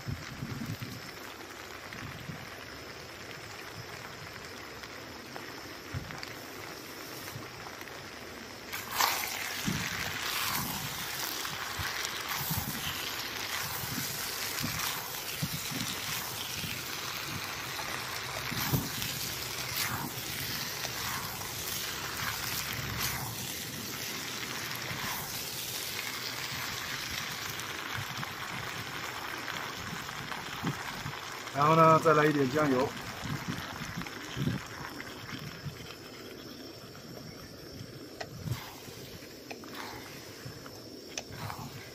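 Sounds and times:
food sizzling in a pan: 0.0s - 41.9s.

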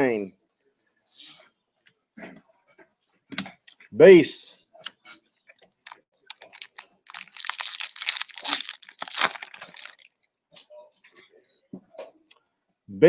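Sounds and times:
foil wrapper crinkling: 5.6s - 10.2s.

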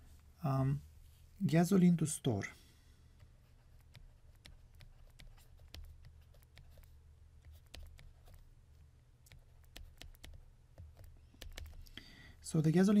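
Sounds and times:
stylus tapping on pen tablet: 3.2s - 8.4s, 9.3s - 11.9s.

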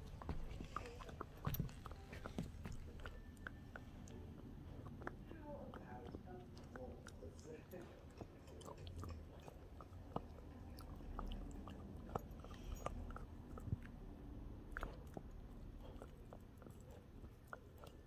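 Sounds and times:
puppy chewing a treat: 0.0s - 18.0s.

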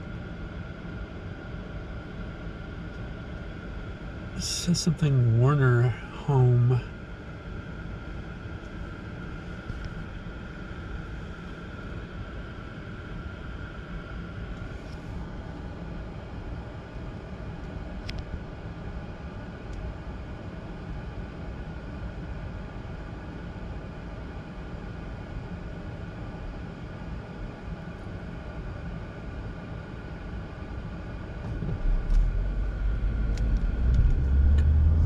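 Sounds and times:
faint high whine: 0.0s - 35.0s
car engine idling rumble: 31.0s - 35.0s.

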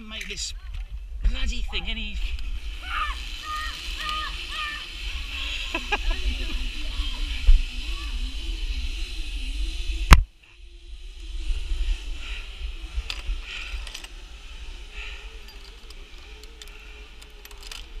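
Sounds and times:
wind rumbling on microphone: 0.0s - 16.2s
karabiners clinking: 2.2s - 8.2s, 13.0s - 14.3s, 14.9s - 18.0s.

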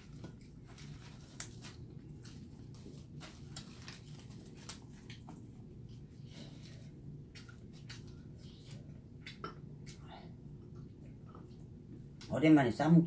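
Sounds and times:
leaves crinkling and rustling: 0.0s - 5.2s
low steady hum: 0.0s - 13.0s.

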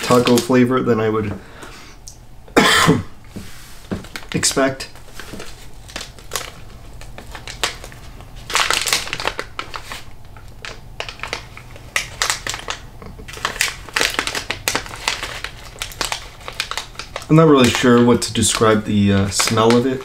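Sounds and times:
snack pouch crinkling: 4.0s - 20.0s.

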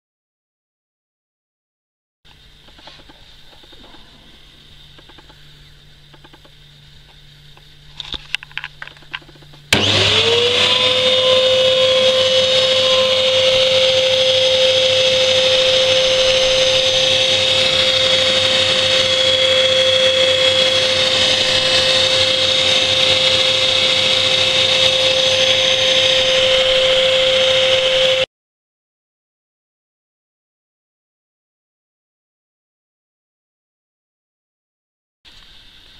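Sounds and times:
vacuum cleaner motor whine: 2.3s - 28.3s.

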